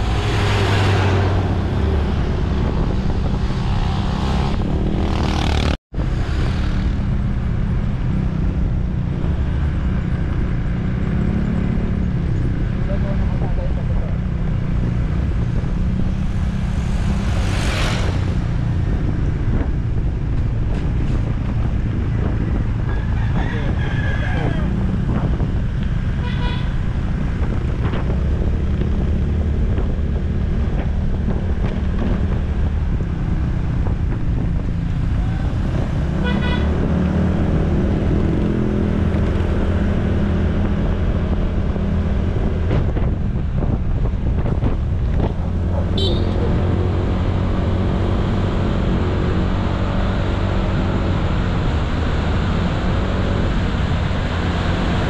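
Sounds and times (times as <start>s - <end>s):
wind and road noise: 0.0s - 55.0s
short horn beep: 46.0s - 46.4s.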